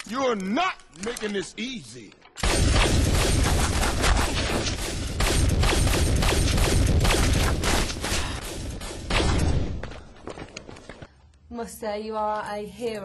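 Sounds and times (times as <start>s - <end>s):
rapid gunfire with low booms: 2.4s - 10.0s.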